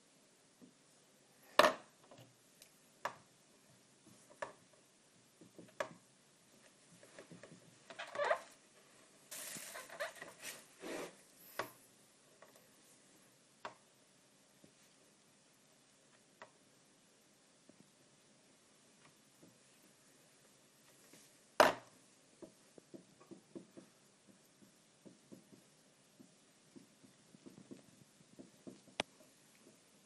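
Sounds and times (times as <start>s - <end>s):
marker tapping on whiteboard: 5.4s - 6.0s, 22.4s - 29.9s.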